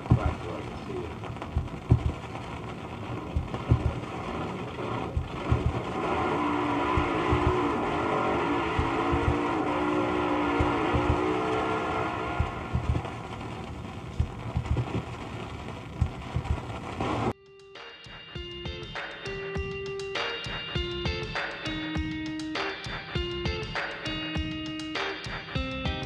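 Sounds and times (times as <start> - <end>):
low thumps from worn record: 0.0 - 6.0, 6.9 - 7.8, 8.7 - 9.6, 10.5 - 11.4, 12.4 - 17.3
drag racing car engine: 0.0 - 17.3
record crackle: 0.0 - 17.4, 18.7 - 26.0.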